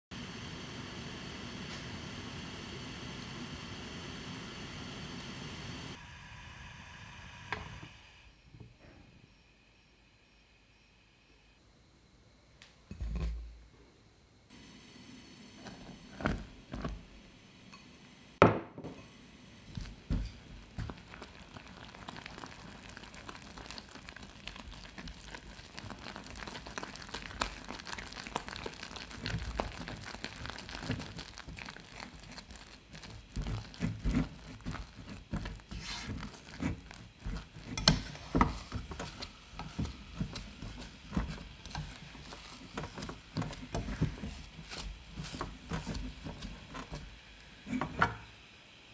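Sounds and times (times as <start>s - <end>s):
spatula scraping saucepan: 33.0s - 47.1s.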